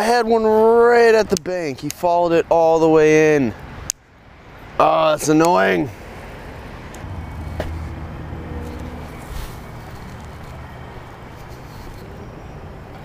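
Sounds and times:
vehicle passing hum: 5.9s - 13.0s
leaves and branches rustling: 7.0s - 12.2s.

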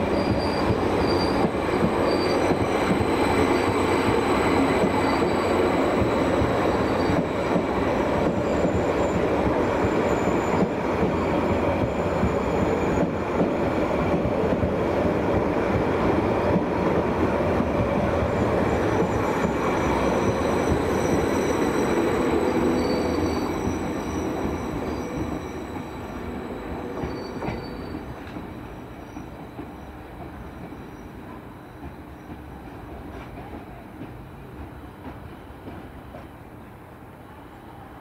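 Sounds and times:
train rumbling on rails: 0.0s - 38.0s
high-pitched wheel squeals: 0.1s - 3.9s, 18.6s - 28.1s.

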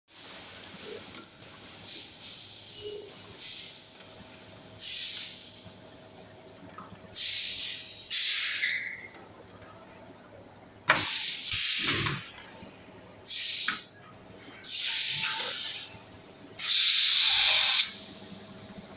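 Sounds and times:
compressed air hissing bursts: 1.8s - 2.8s, 3.4s - 3.9s, 4.8s - 5.8s, 7.2s - 8.9s, 10.9s - 12.2s, 13.3s - 13.9s, 14.6s - 15.9s, 16.6s - 18.0s.

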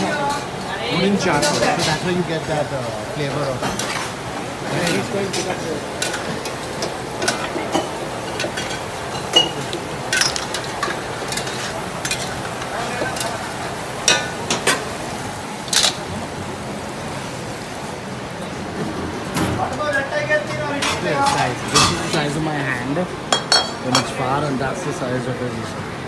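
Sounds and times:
crab sizzling in a wok: 0.2s - 17.9s
ladle clinking on pan: 23.3s - 24.1s.

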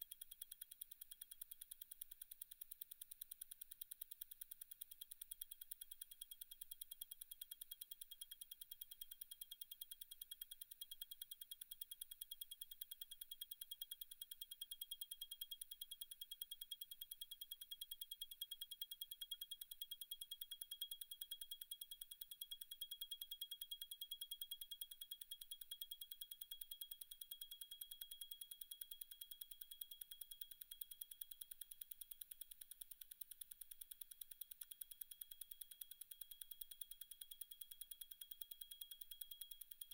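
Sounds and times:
watch movement ticking: 27.0s - 39.9s.

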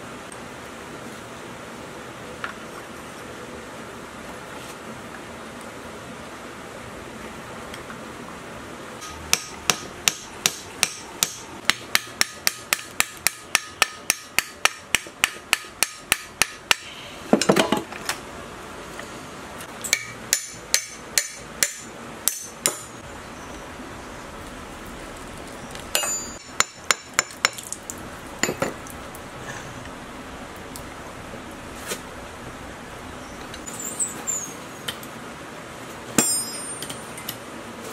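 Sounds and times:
hammer striking metal: 9.0s - 17.5s, 19.9s - 23.0s, 25.9s - 27.6s, 36.2s - 37.0s.

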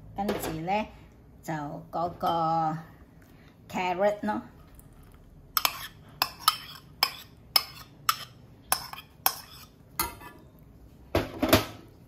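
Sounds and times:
metal spoon clinking on ceramic bowl: 5.6s - 10.4s.

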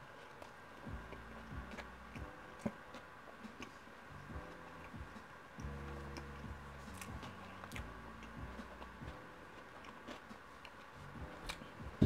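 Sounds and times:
person chewing: 9.6s - 10.9s.

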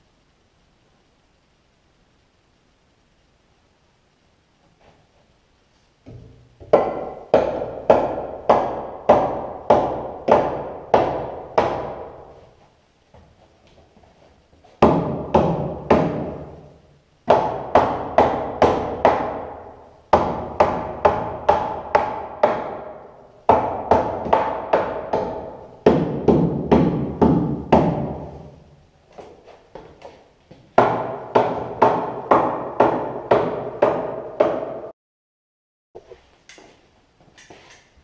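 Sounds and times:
hammer driving nails into wood: 6.1s - 12.2s, 14.8s - 16.6s, 17.3s - 28.3s.

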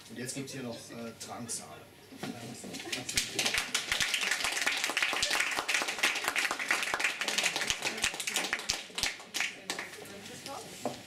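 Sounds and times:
audience applauding: 2.9s - 9.9s.

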